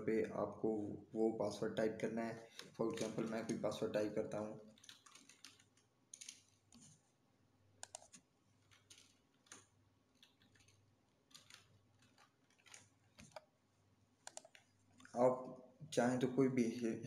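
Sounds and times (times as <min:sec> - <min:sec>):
computer keyboard keystrokes: 0:02.5 - 0:03.6, 0:04.8 - 0:07.0, 0:07.8 - 0:13.4, 0:14.2 - 0:14.6.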